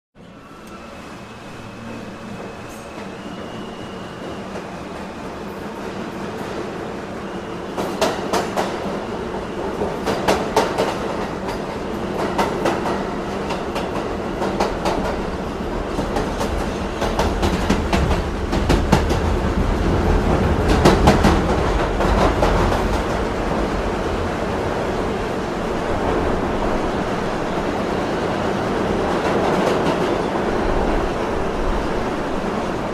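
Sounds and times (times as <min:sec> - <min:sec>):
subway train rumble: 0:00.2 - 0:32.9.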